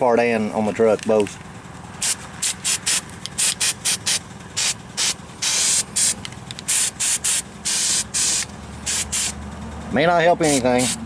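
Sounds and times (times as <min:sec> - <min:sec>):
aerosol can spraying bursts: 0:02.0 - 0:09.4, 0:10.4 - 0:11.0.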